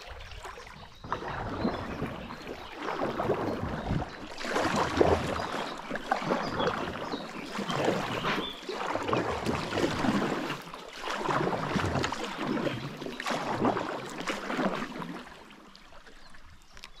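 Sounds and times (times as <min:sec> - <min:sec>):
paddle splashing in water: 0:00.0 - 0:17.0.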